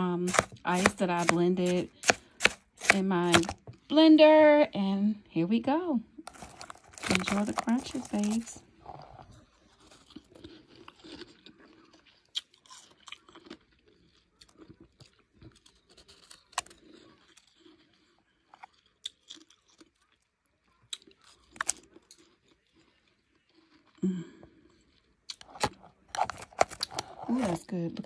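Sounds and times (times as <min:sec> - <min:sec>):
person chewing crushed ice: 0:00.2 - 0:03.8, 0:06.2 - 0:27.6.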